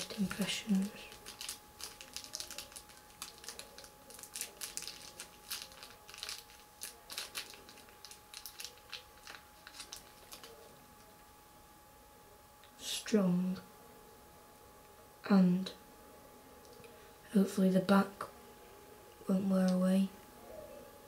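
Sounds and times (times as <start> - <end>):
plastic packaging crinkling: 0.0 - 11.2.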